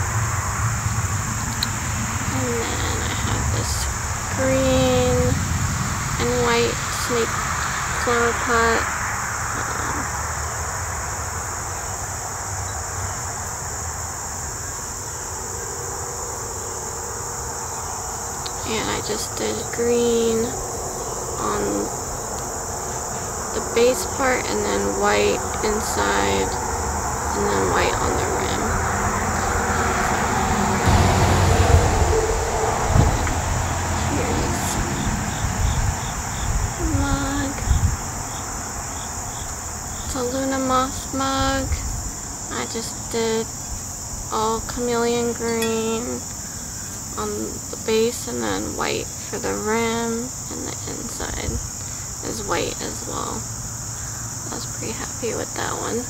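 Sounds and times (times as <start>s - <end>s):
cricket chirping: 0.0s - 56.0s
insect chorus trilling: 0.0s - 56.0s
low rumble: 19.6s - 38.2s.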